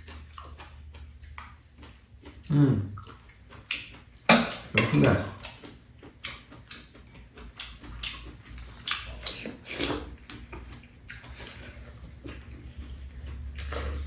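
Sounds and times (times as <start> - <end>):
chewing: 0.0 - 14.0
slurping soup: 9.2 - 10.6.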